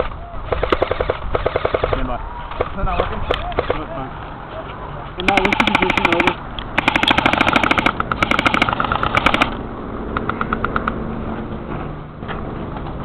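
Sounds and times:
airsoft guns firing bursts: 0.0 - 3.8, 5.2 - 9.6.

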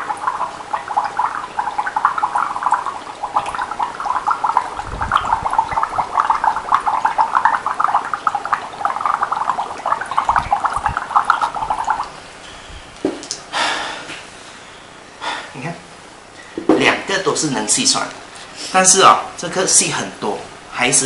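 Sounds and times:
blowing bubbles through straw in water: 0.0 - 12.2.

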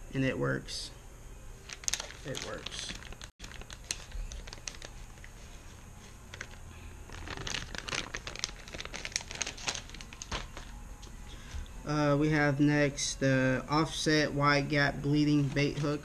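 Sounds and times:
plastic bag crinkling: 1.6 - 5.3, 6.3 - 10.7.

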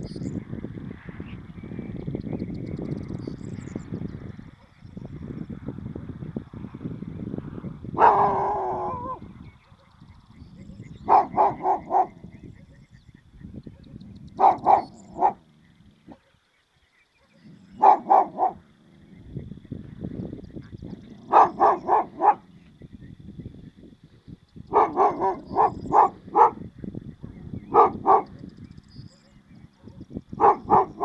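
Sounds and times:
dog barking: 8.0 - 9.9, 11.0 - 12.3, 13.7 - 15.4, 17.2 - 18.6, 21.1 - 22.5, 24.7 - 26.7, 27.7 - 28.5, 29.8 - 31.0.

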